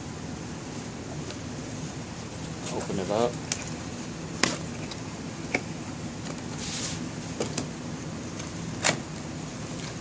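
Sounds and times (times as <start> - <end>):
steady low hum: 0.0 - 10.0
cardboard scraping rustle: 6.4 - 7.1.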